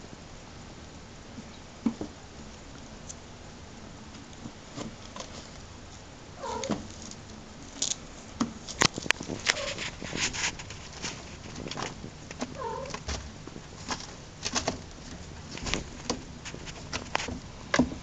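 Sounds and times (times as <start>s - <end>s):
kitten mewing: 6.4s - 6.8s, 12.6s - 13.0s.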